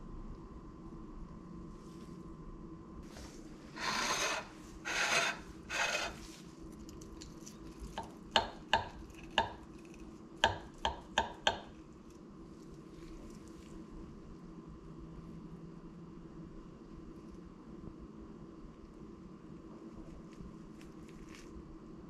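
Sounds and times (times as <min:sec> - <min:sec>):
knife sawing crispy chicken crust: 0:03.8 - 0:06.4.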